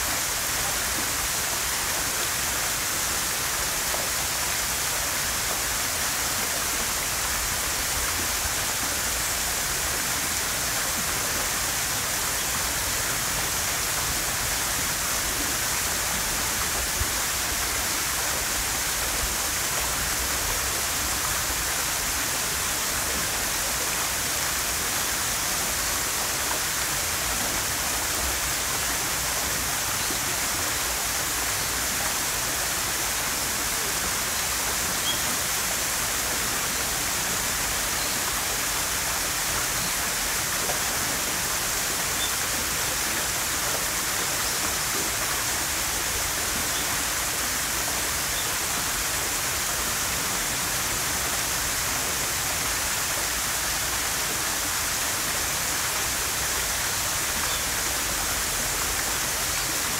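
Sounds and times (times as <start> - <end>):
waterfall rushing into pond: 0.0 - 59.9.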